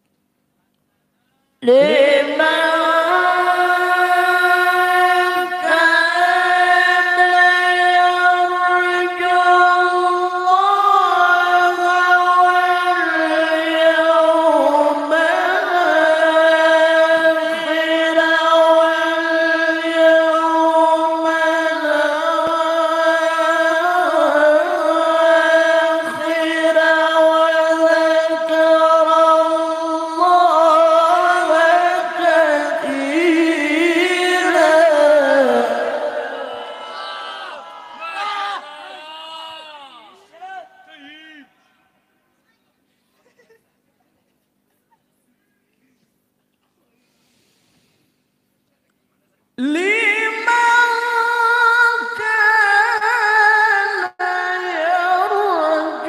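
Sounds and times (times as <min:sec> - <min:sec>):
man chanting melodically: 0:38.0 - 0:41.8.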